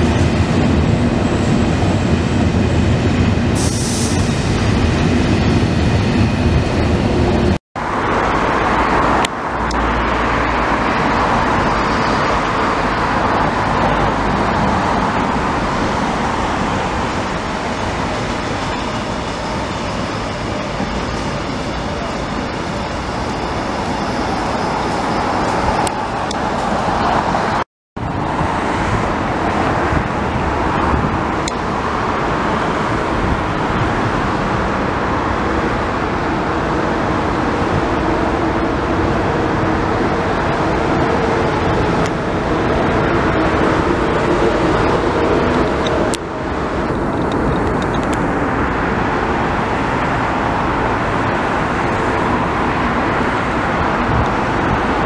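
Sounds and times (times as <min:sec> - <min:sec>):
city road traffic: 0:00.0 - 0:55.0
electric train passing: 0:00.0 - 0:55.0.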